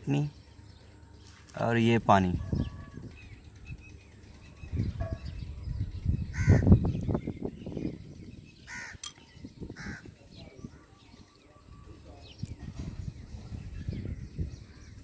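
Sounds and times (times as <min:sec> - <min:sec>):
crow cawing: 0:06.3 - 0:06.7, 0:08.7 - 0:09.0, 0:09.8 - 0:10.1.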